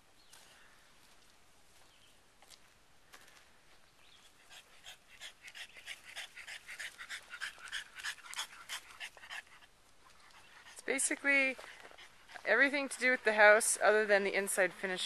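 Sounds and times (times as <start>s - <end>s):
dog panting: 4.3s - 12.8s.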